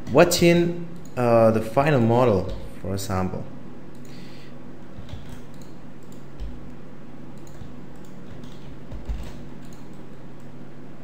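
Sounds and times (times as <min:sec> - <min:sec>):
keyboard and mouse clicks: 0:00.9 - 0:01.2, 0:05.0 - 0:06.8, 0:07.4 - 0:10.6.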